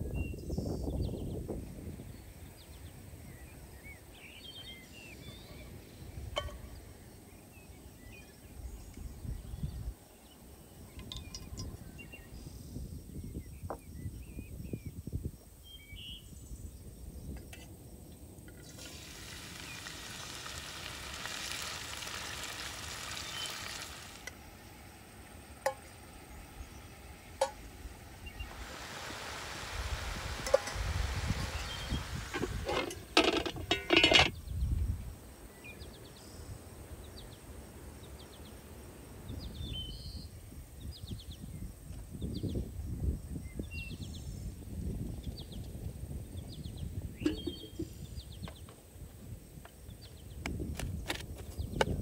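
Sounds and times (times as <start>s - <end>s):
birds chirping: 0.0s - 15.0s, 18.6s - 41.6s, 46.3s - 48.7s
food sizzling in a frying pan: 18.6s - 34.3s.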